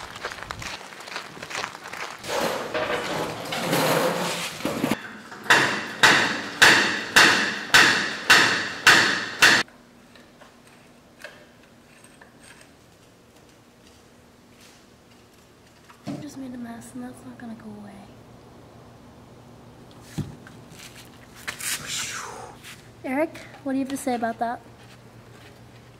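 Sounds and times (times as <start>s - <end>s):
lift table metallic clanks: 2.3s - 9.6s.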